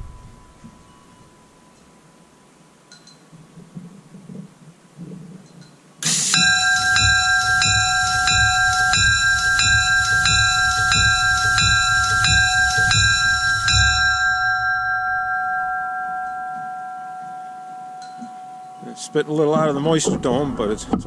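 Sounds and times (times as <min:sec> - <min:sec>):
low thump of bell swing: 0:00.0 - 0:01.9, 0:06.4 - 0:18.8
locomotive bell ringing: 0:00.0 - 0:02.4, 0:06.1 - 0:20.1.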